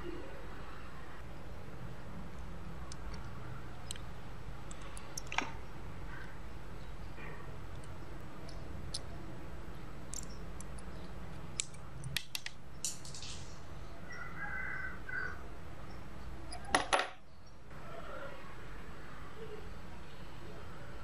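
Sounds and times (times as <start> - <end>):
small metal clicks and taps: 2.9 - 5.6, 7.7 - 9.1, 10.1 - 13.4.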